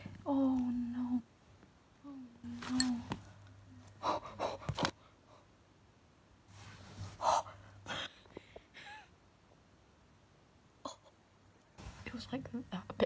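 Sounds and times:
person breathing hard and gasping: 0:04.0 - 0:05.5.

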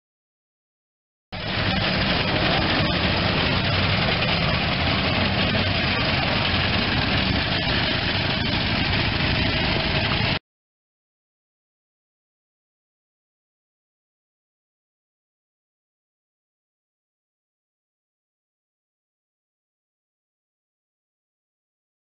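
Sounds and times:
old car engine running: 0:01.4 - 0:10.4.

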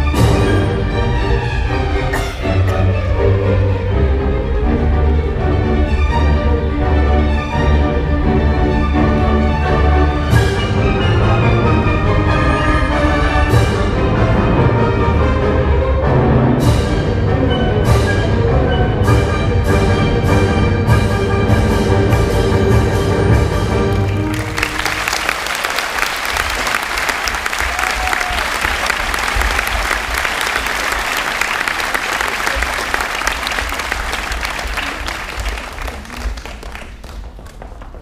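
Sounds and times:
orchestral music: 0:00.0 - 0:37.2
audience applause: 0:23.8 - 0:38.0.

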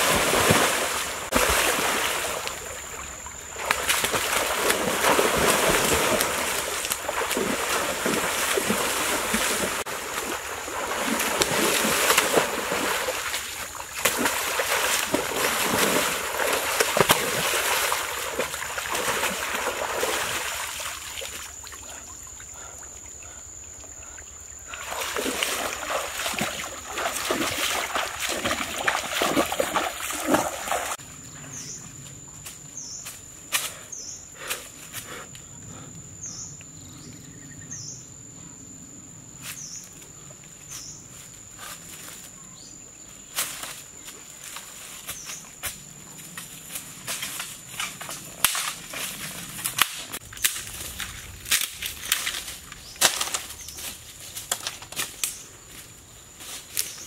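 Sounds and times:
water splashing and sloshing: 0:00.0 - 0:31.0, 0:46.0 - 0:56.9.

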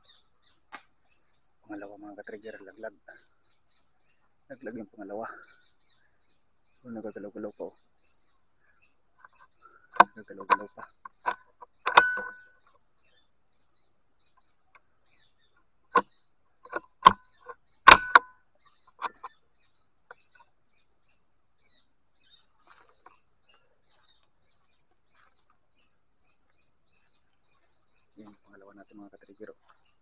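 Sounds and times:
sharp clicks: 0:10.0 - 0:12.5, 0:16.7 - 0:18.3, 0:19.0 - 0:19.3.

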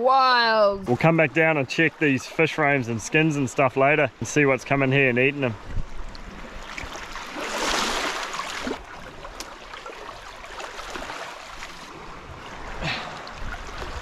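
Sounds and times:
small waves washing over sand: 0:05.4 - 0:14.0.

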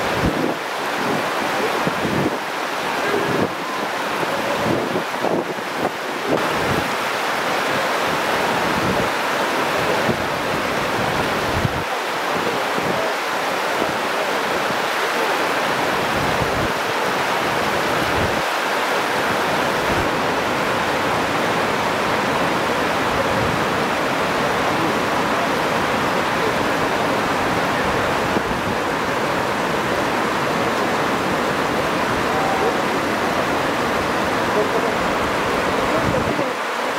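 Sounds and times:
water rushing over a weir: 0:00.0 - 0:36.9.

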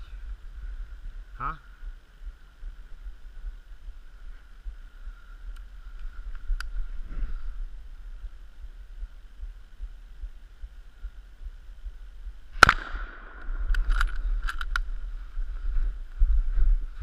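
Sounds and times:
wind on microphone: 0:00.0 - 0:17.0
rifle shot: 0:12.5 - 0:14.7
sharp clicks: 0:12.6 - 0:14.9.

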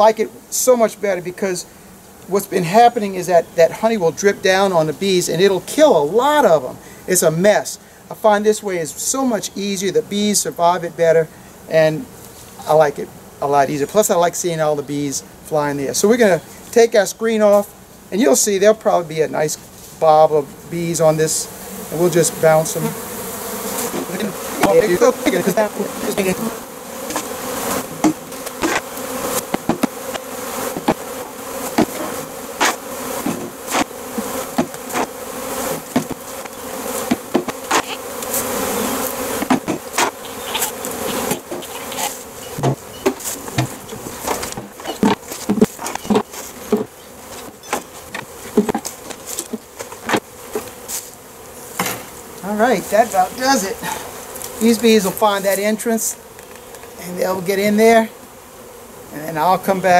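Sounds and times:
honey bees buzzing: 0:00.0 - 0:59.9
wooden frame knocking on hive: 0:23.8 - 0:50.8.

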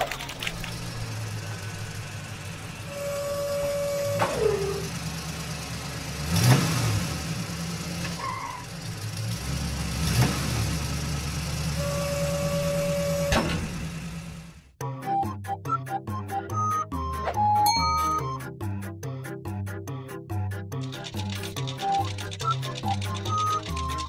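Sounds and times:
car engine running: 0:00.0 - 0:14.8.

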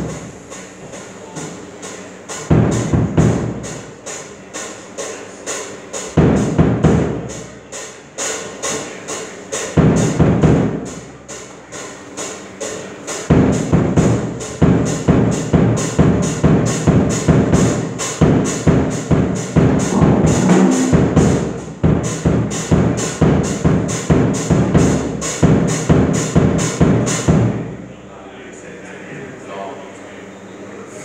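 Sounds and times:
drum kit steady beat: 0:00.0 - 0:05.0, 0:06.0 - 0:11.3, 0:13.2 - 0:27.8
cymbal strikes: 0:19.6 - 0:22.9
electric guitar chords: 0:19.8 - 0:21.8.

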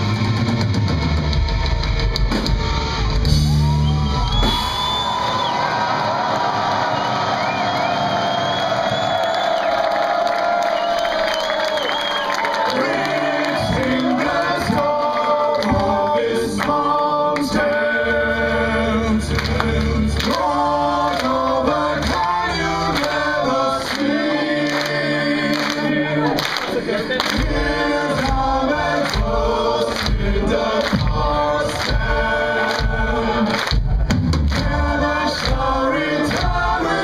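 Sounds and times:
heavy metal band playing: 0:00.0 - 0:05.0
voices singing together: 0:11.4 - 0:37.0.

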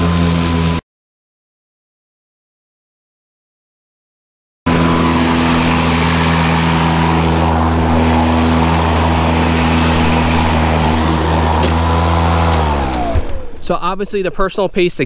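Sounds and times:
electric lawn mower humming: 0:00.0 - 0:00.8, 0:04.7 - 0:14.4.

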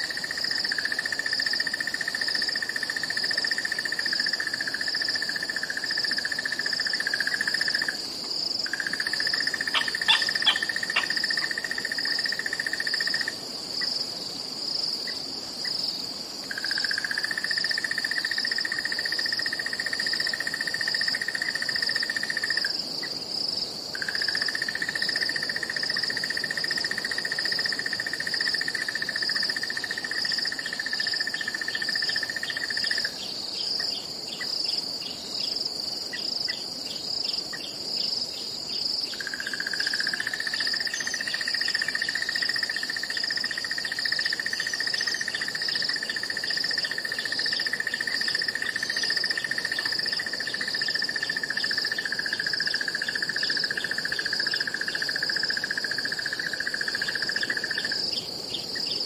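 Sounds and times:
crickets chirping: 0:00.0 - 0:59.0
lower insect trill: 0:00.0 - 0:59.0.

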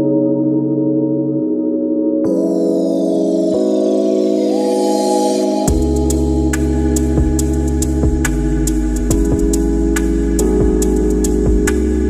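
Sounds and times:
organ-like keyboard chords: 0:00.0 - 0:12.0
deep bass: 0:05.7 - 0:12.0.

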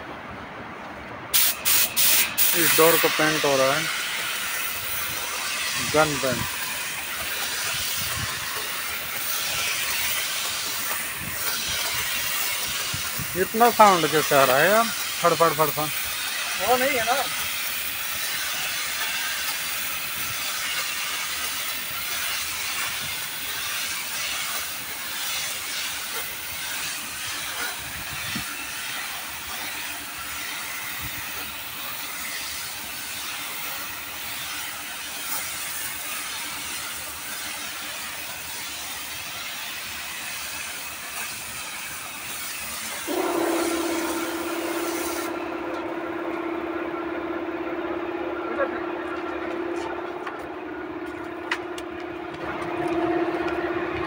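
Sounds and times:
paint spray gun air hiss: 0:01.3 - 0:46.8
steady hum: 0:43.1 - 0:54.0.

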